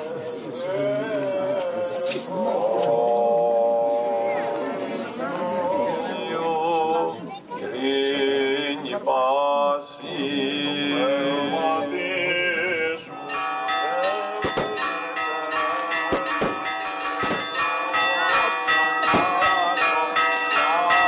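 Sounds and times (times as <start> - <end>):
chanting: 0.0 - 21.0
church bells ringing rapidly: 12.8 - 21.0.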